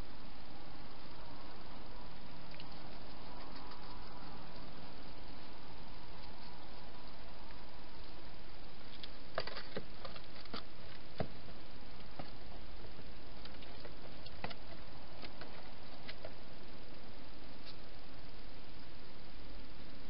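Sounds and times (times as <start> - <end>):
steady hiss: 0.0 - 20.0
hedgehogs clicking and scuffing: 8.8 - 12.6, 13.2 - 16.5.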